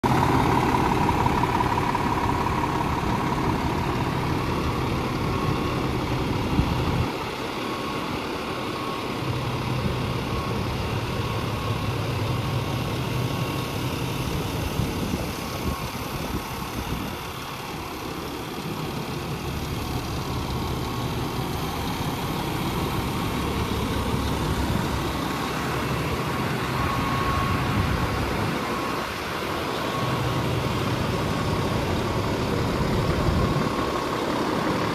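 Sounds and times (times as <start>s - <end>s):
diesel truck engine idling: 0.0s - 34.9s
faint thin whine: 0.2s - 34.9s.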